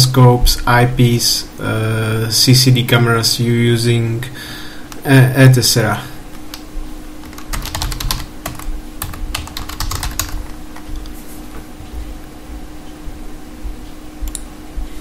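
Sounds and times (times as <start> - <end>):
faint steady hum: 0.0 - 15.0
keyboard typing: 7.2 - 11.1.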